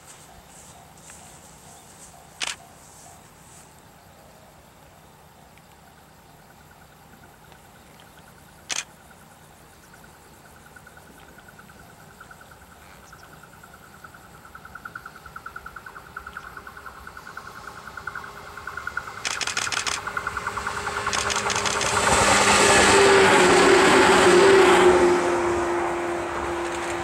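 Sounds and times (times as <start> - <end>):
insects chirping: 0.0 - 24.8
electric train approaching: 10.4 - 27.0
sharp click: 19.2 - 20.0, 21.1 - 22.0.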